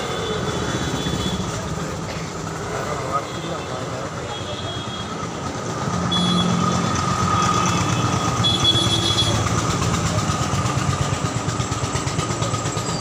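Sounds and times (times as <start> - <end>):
engine running with whine: 5.2 - 13.0.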